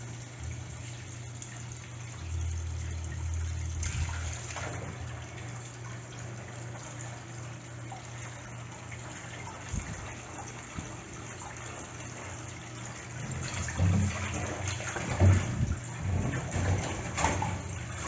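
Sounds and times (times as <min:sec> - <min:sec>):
tap running into sink: 0:13.1 - 0:18.0.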